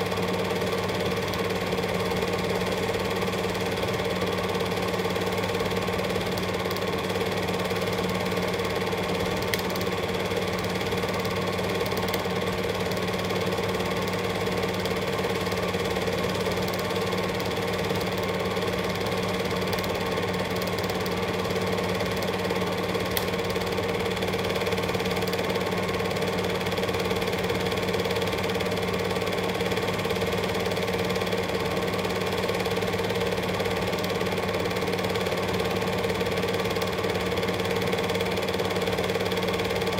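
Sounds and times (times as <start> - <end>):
film projector clatter: 0.0 - 39.9
projector hum: 0.0 - 39.9.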